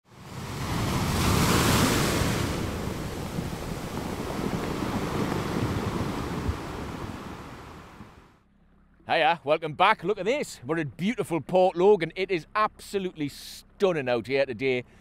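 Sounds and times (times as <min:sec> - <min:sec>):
waves rushing: 0:00.1 - 0:08.3.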